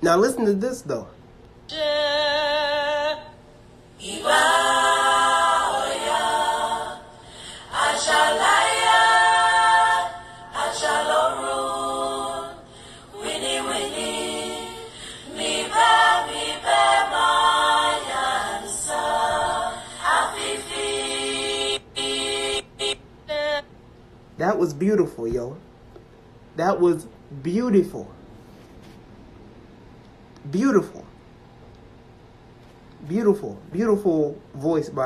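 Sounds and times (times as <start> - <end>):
women singing a cappella: 1.7 - 23.7.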